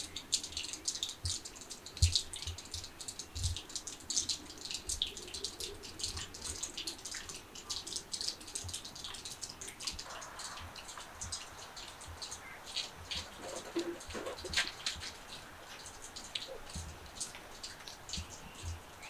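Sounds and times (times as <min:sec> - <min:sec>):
water drips pattering: 0:00.0 - 0:19.0.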